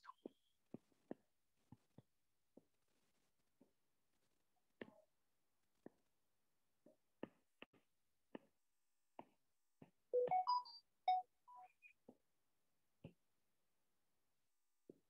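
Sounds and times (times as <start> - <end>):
short electronic beeps: 10.2 - 11.9.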